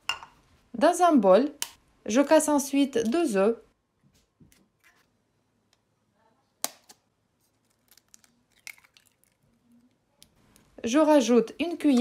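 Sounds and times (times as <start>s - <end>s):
egg shell crackling: 7.5s - 10.7s.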